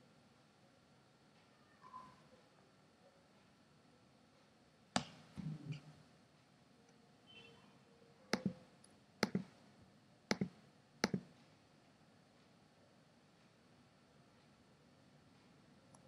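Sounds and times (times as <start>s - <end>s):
computer mouse button clicks: 8.4s - 8.6s, 9.2s - 9.5s, 10.3s - 11.3s.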